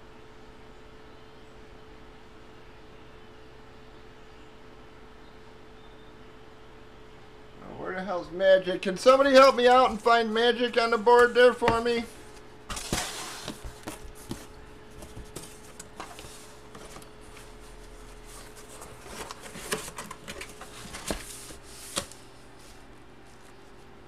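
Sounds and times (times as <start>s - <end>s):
paper rustling: 9.1s - 23.9s.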